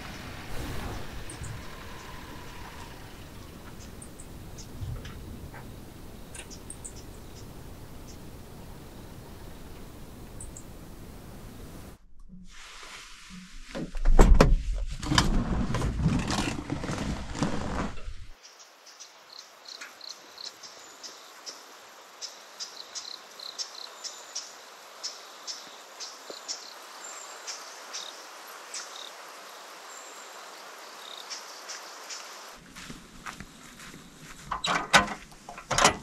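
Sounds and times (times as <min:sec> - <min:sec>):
knocking and rustling in truck cab: 0:34.4 - 0:36.0.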